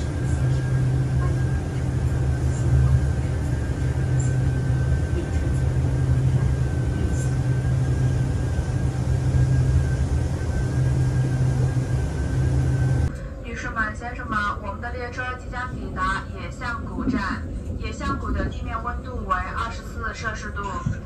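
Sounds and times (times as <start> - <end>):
thin high whine: 0.0 - 13.2
train carriage rumble: 0.0 - 21.0.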